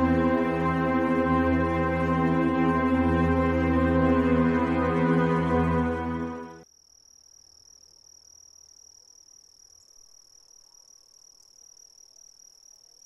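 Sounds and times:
faint crickets trilling: 6.6s - 13.0s.

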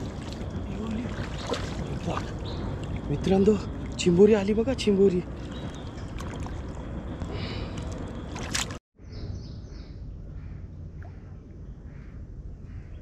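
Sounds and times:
sharp splash: 0.0s - 4.1s, 5.4s - 6.8s, 7.7s - 8.8s
water sloshing and splashing: 0.0s - 8.8s
steady low noise: 9.0s - 13.0s.

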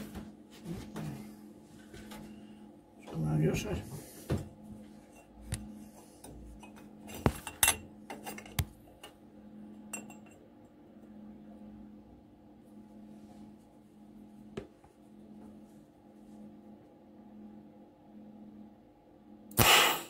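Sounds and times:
low electrical hum: 0.0s - 20.0s
metal pipe clinking: 9.9s - 10.4s.

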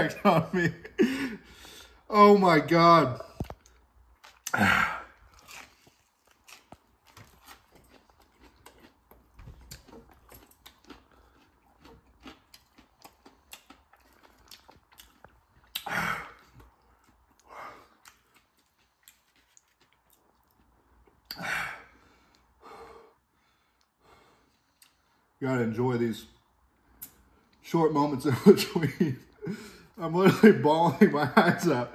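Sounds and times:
person chewing food: 3.3s - 21.4s.

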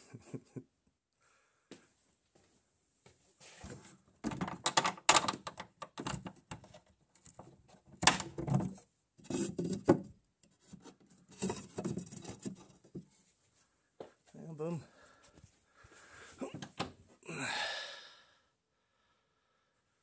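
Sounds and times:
wooden door knocking and clattering: 4.2s - 6.6s, 8.0s - 8.8s.

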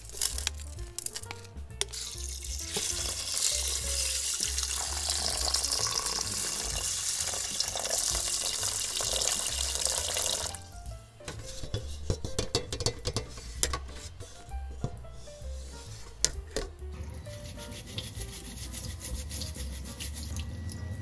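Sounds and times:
water pouring onto rice: 1.9s - 10.6s
pot knocks and clicks: 11.3s - 14.1s.

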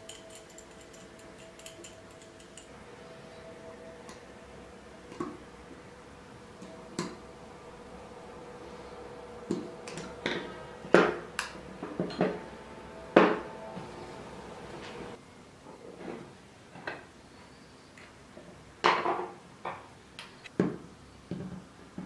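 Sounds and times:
hand tools clicking on metal bracket: 0.0s - 2.7s.

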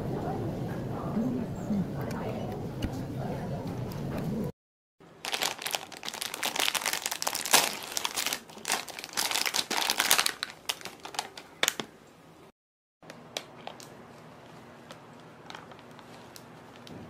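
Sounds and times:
plastic wrapper crinkling: 5.1s - 12.0s, 13.1s - 14.0s, 14.9s - 16.9s.

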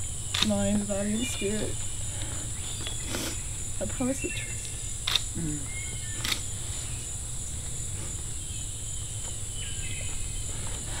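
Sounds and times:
insects droning in chorus: 0.0s - 11.0s
sharp click: 0.3s - 0.6s, 5.0s - 5.3s, 6.2s - 6.5s.

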